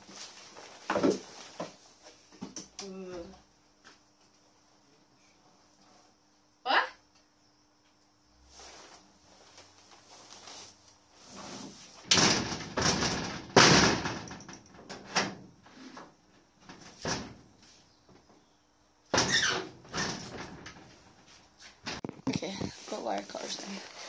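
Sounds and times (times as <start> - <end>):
door banging and rattling: 12.1 - 15.6, 16.6 - 17.5, 19.1 - 21.1.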